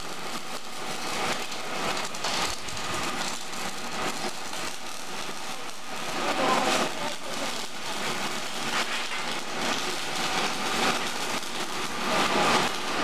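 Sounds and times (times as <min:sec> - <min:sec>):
arc welding crackling sizzle: 0:00.0 - 0:13.0.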